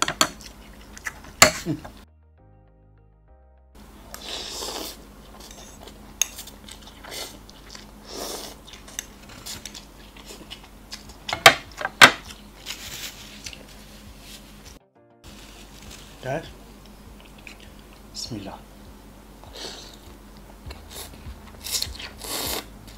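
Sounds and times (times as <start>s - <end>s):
chewing: 0.2s - 2.0s, 4.1s - 13.8s, 16.8s - 18.1s, 19.4s - 22.9s
noodle slurping: 4.1s - 10.6s, 19.4s - 20.1s, 20.7s - 22.9s.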